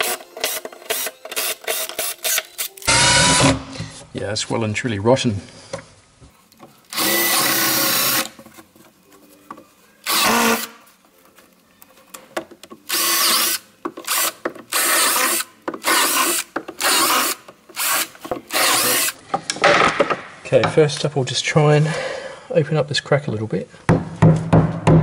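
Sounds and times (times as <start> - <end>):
cordless drill boring bursts: 6.9 - 8.3, 10.1 - 10.7, 12.9 - 19.2.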